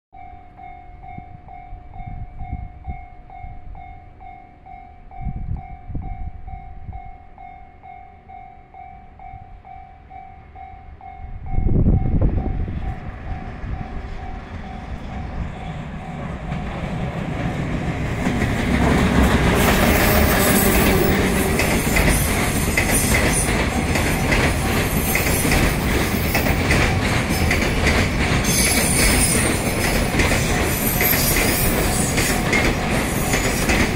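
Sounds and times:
train wheels clattering: 12.7s - 33.9s.

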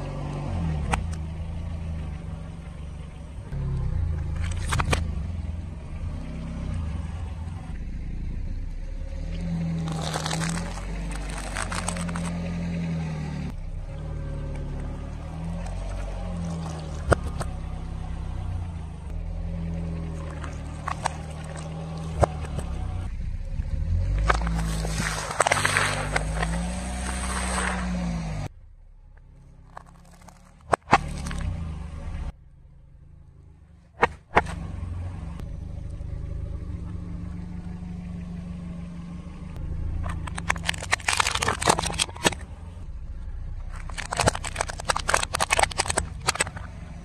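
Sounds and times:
car engine low hum: 0.0s - 47.0s
brittle things cracking under tyre: 4.2s - 5.1s, 9.7s - 12.7s, 14.8s - 17.6s, 20.1s - 23.1s, 24.0s - 27.8s, 29.2s - 31.6s, 39.9s - 42.6s, 43.2s - 47.0s
tyre crunching cereal: 9.8s - 12.5s, 15.6s - 17.4s, 20.2s - 22.7s, 24.2s - 27.8s, 29.7s - 31.5s, 40.0s - 42.4s, 43.6s - 46.7s.

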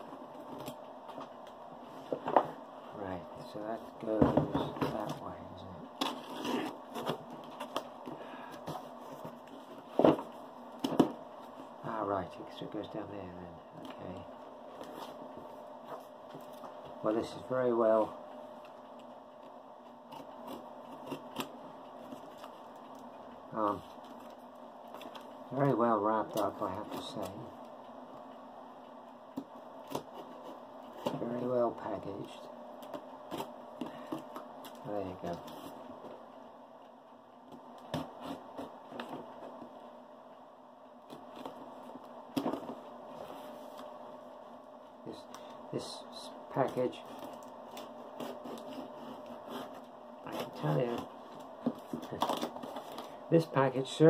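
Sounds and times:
blade scraping tape and cardboard: 6.0s - 7.2s, 47.7s - 51.0s.

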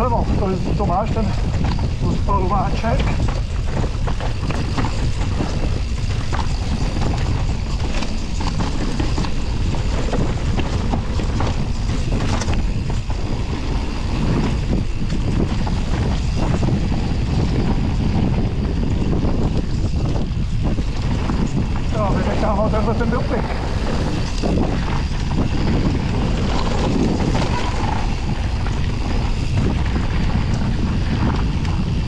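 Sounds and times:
mountain bike rattling over trail: 0.0s - 32.0s
wind rushing over microphone: 0.0s - 32.0s.

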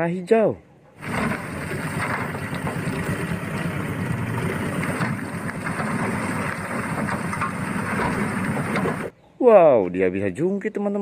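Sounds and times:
earth being dumped: 1.0s - 9.1s
truck engine running: 1.0s - 9.1s.

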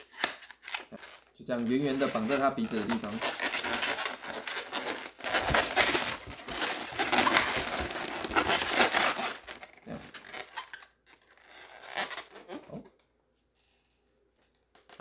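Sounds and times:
balloons crinkling and rubbing: 0.0s - 13.0s.

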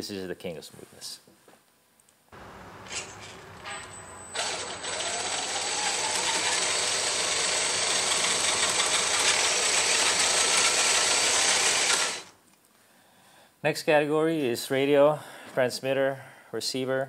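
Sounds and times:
electric motor whine and gears: 2.4s - 12.3s.

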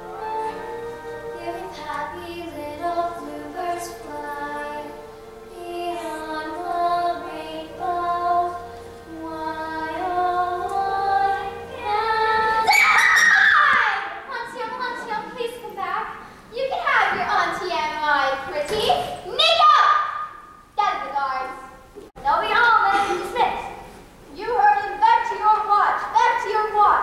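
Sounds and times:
girl singing: 0.0s - 13.0s.

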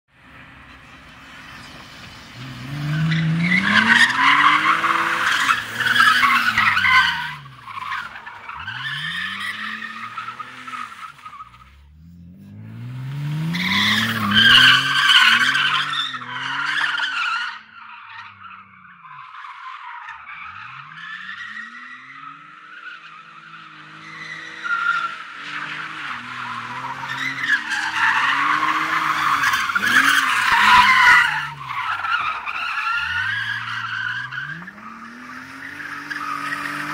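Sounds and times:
car engine revving: 0.4s - 16.9s, 23.4s - 36.9s
tyres screeching: 25.8s - 36.9s.

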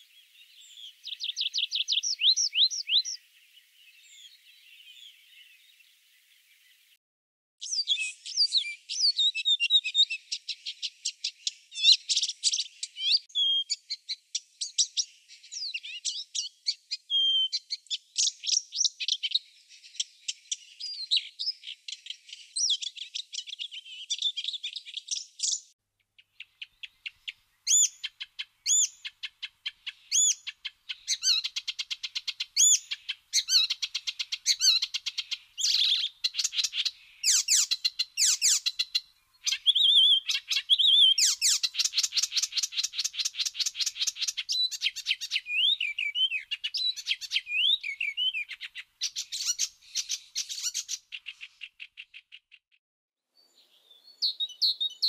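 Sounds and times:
warbler song with rapid trills: 0.0s - 7.0s, 7.6s - 52.6s, 53.4s - 55.0s.

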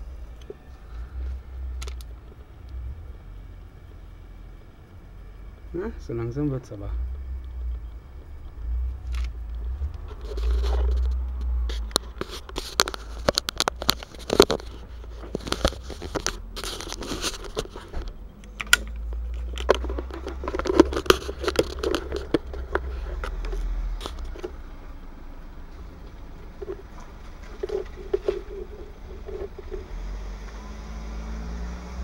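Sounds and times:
low rumble: 0.0s - 12.5s.

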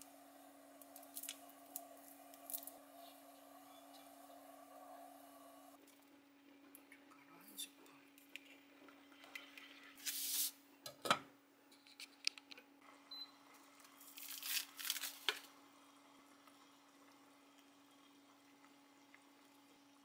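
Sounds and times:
steady low hum: 0.0s - 5.8s.

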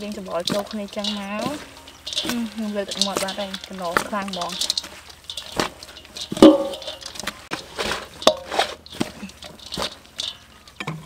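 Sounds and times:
salad rustling in a bowl: 0.0s - 10.8s.

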